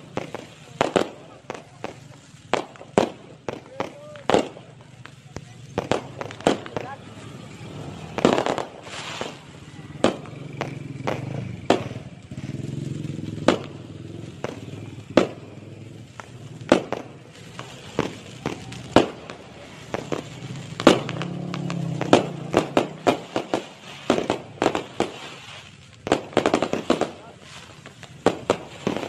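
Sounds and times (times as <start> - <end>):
fireworks bangs: 0.0 - 29.0
fireworks crackles: 0.0 - 29.0.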